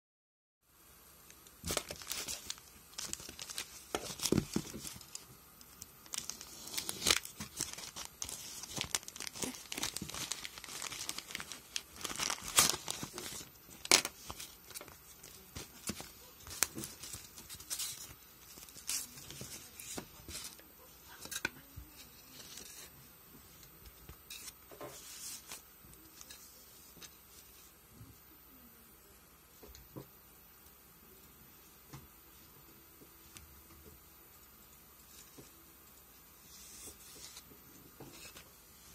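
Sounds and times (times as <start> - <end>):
plastic package tearing: 1.4 - 5.2, 5.8 - 15.0
plastic wrapping crinkling: 1.4 - 20.6.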